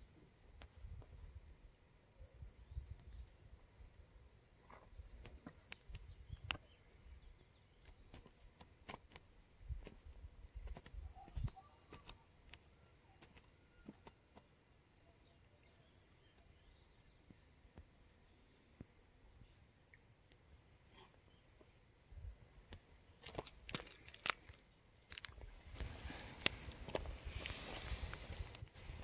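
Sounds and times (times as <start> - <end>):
crickets trilling: 0.0 - 29.0
small clicks: 10.6 - 14.4.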